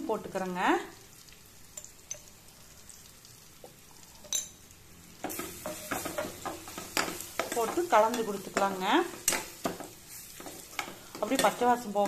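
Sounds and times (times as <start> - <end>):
faint frying sizzle: 0.0 - 12.0
metal spoon scraping a pan: 5.2 - 12.0.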